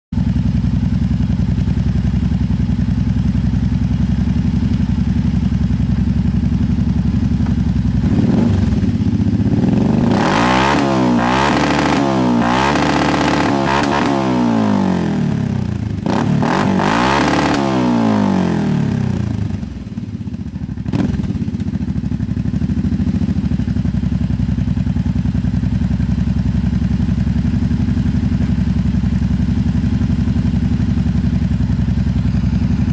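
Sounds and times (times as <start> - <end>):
atv engine idling and revving: 0.2 - 32.9.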